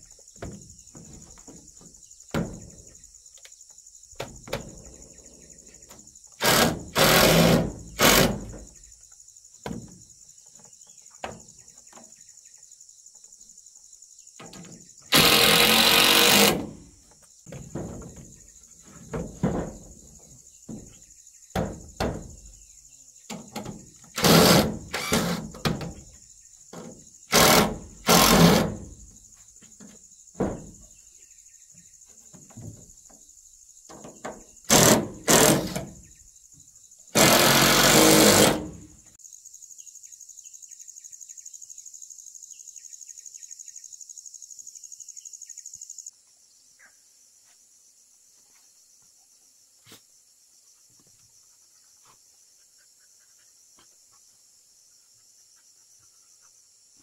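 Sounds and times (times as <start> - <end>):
insects droning: 0.0 - 57.0
cordless drill driving screws: 6.4 - 8.4, 15.1 - 16.7, 24.2 - 25.4, 27.3 - 28.6, 34.7 - 35.8, 37.2 - 38.8.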